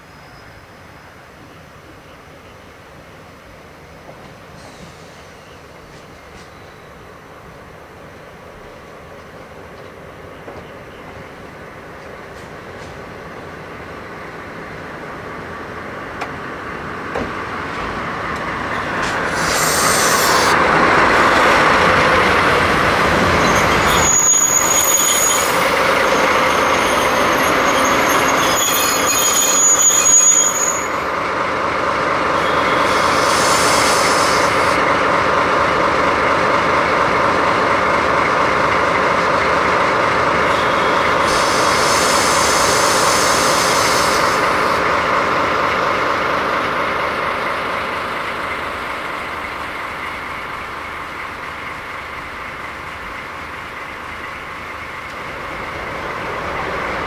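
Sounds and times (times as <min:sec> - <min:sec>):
diesel locomotive engine running: 0:01.6 - 0:57.0
high wheel squeal: 0:18.7 - 0:20.6, 0:23.0 - 0:31.2, 0:32.3 - 0:34.8, 0:40.3 - 0:44.8.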